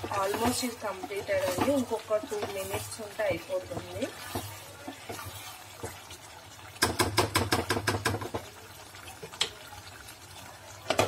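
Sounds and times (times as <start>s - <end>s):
spoon knocking and scraping pot: 0.0s - 6.0s, 6.8s - 8.5s.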